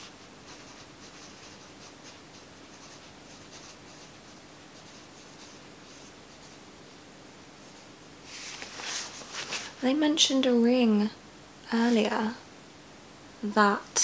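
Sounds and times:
low steady hum: 0:00.0 - 0:14.0
paper scratching and rustling: 0:08.3 - 0:09.8.

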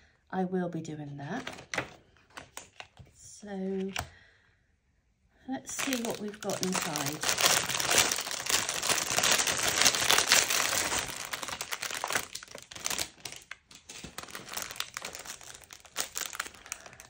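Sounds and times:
plastic bag crinkling: 0:01.4 - 0:02.9, 0:05.7 - 0:17.0.

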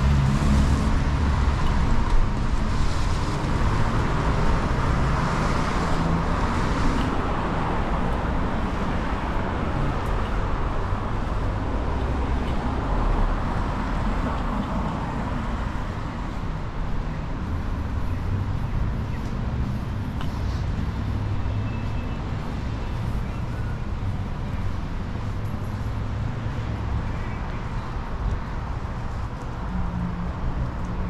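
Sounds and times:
tyres hissing on wet road: 0:00.0 - 0:09.9.

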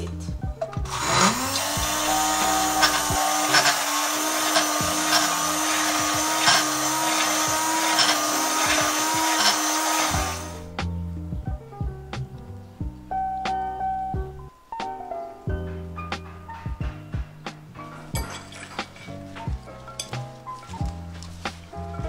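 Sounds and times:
drink mixer whirring: 0:00.8 - 0:10.7.

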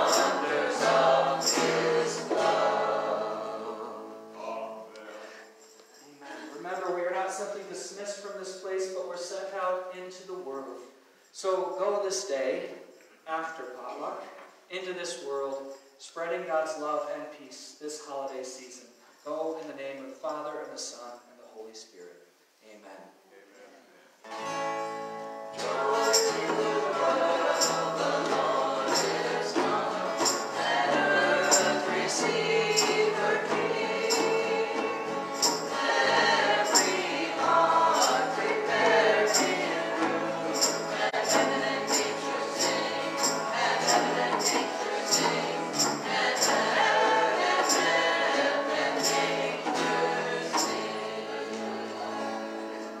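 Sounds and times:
sharp percussion hits: 0:00.0 - 0:03.5, 0:25.6 - 0:51.0
voices singing: 0:00.0 - 0:05.4, 0:25.6 - 0:52.8
strummed acoustic guitars: 0:00.0 - 0:09.4, 0:24.2 - 0:53.0.

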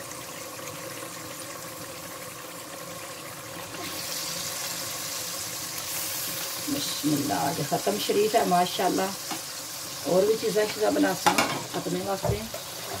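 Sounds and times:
watery sizzle in cooking pot: 0:00.0 - 0:13.0.

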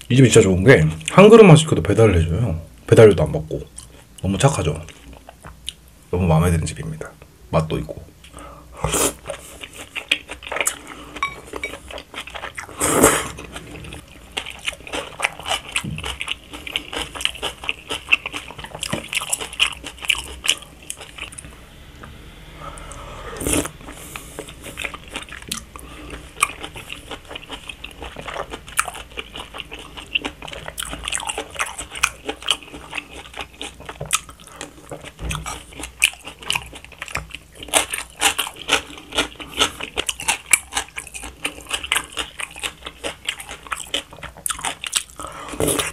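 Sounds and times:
person slurping noodles: 0:12.6 - 0:14.0, 0:22.6 - 0:27.1.

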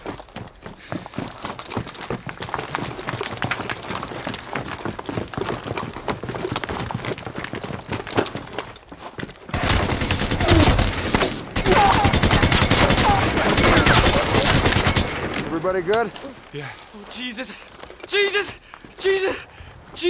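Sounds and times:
running footsteps: 0:00.0 - 0:11.6, 0:12.2 - 0:20.0
machine-gun fire: 0:09.5 - 0:15.5.

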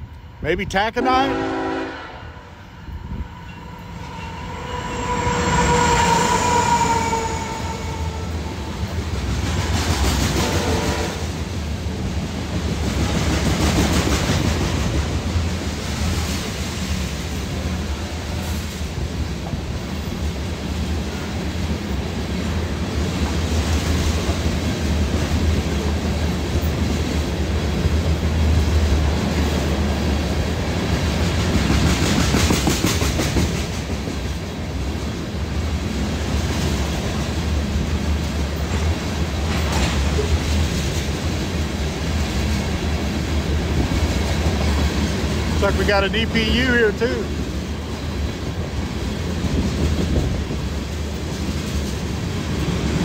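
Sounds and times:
train cars rumbling and clacking: 0:00.0 - 0:53.0
locomotive horn: 0:00.9 - 0:03.2, 0:04.2 - 0:08.8, 0:10.4 - 0:11.3.

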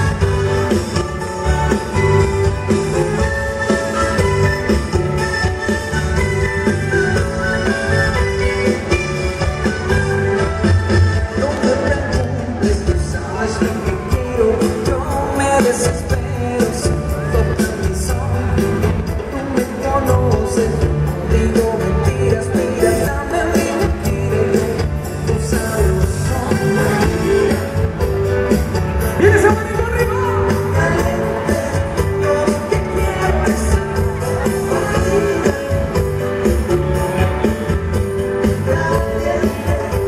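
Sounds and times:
drums: 0:00.0 - 0:40.0
live band playing: 0:00.0 - 0:40.0
man singing into microphone: 0:11.1 - 0:28.4, 0:29.0 - 0:40.0.

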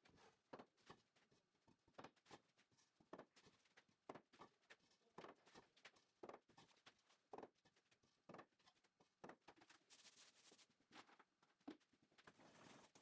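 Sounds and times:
faint knocks and taps: 0:00.4 - 0:09.7.

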